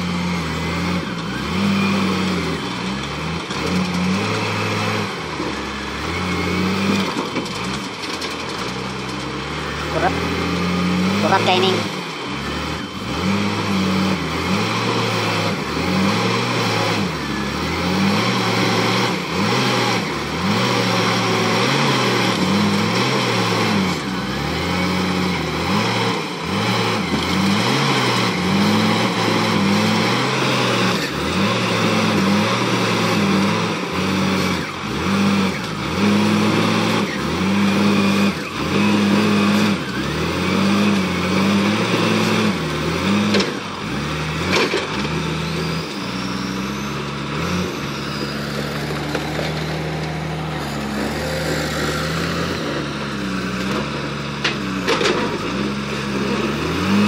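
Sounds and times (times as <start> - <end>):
diesel engine revving under load: 0.0 - 57.0.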